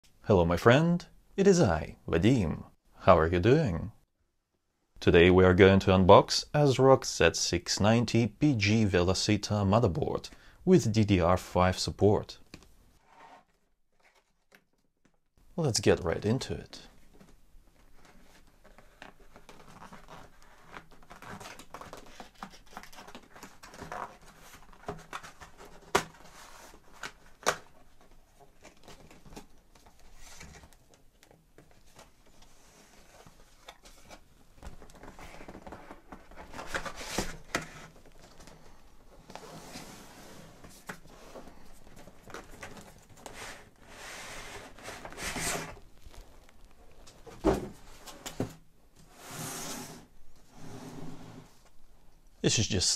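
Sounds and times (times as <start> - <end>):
cardboard rustling and crinkling: 13.0 - 14.9, 16.9 - 48.7.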